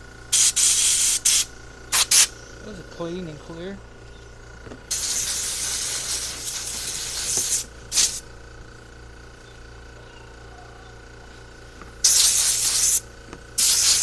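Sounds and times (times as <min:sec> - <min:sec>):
pressurized spray hissing: 0:00.3 - 0:02.3, 0:04.9 - 0:08.2, 0:12.0 - 0:13.0, 0:13.6 - 0:14.0.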